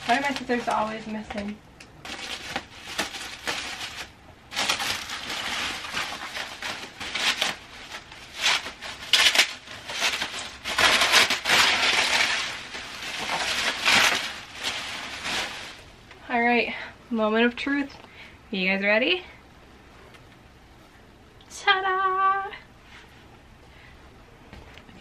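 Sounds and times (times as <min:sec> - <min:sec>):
plastic sheeting crinkling: 0:00.0 - 0:16.6.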